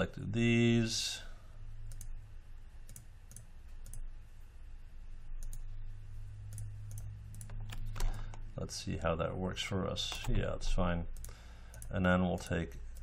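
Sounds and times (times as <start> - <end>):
low steady hum: 0.0 - 13.0
computer mouse clicking: 1.9 - 2.2, 2.8 - 4.1, 5.4 - 5.7, 6.5 - 8.4, 11.1 - 13.0.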